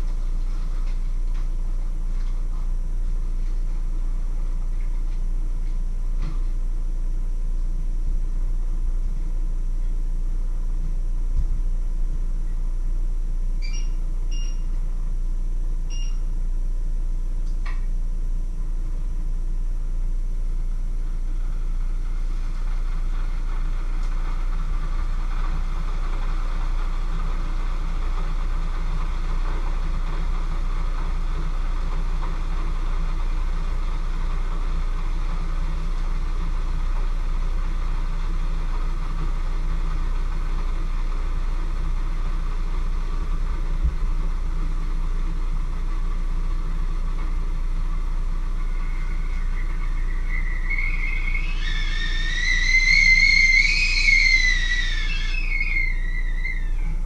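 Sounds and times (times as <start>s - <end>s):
hiss: 48.6s - 57.0s.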